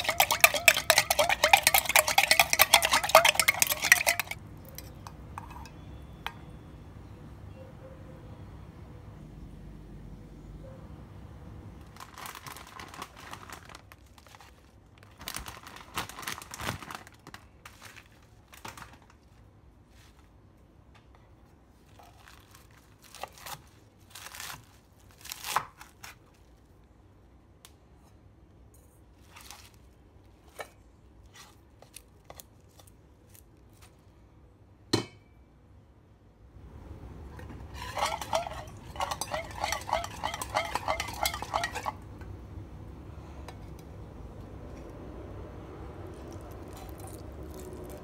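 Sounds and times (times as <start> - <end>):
lettuce leaves tearing: 22.0 - 26.4, 46.1 - 48.0.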